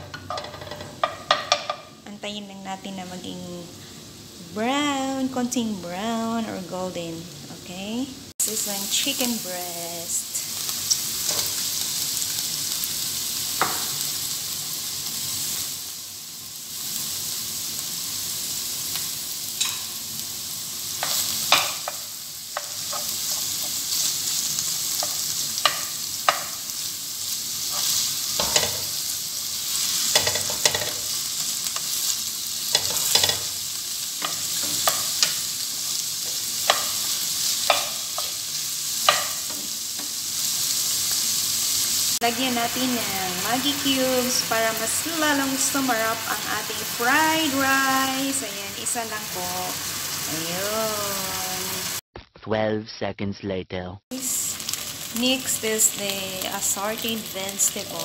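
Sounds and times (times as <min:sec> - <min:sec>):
spatula stirring and tapping pan: 0:00.0 - 0:01.9, 0:21.0 - 0:24.2, 0:24.9 - 0:26.7, 0:27.7 - 0:29.0, 0:30.1 - 0:31.1, 0:32.7 - 0:33.6, 0:34.2 - 0:35.5, 0:36.2 - 0:38.4, 0:39.0 - 0:40.2
chicken sizzling in a pan: 0:00.0 - 0:06.5, 0:07.2 - 0:52.0, 0:54.1 - 0:58.0.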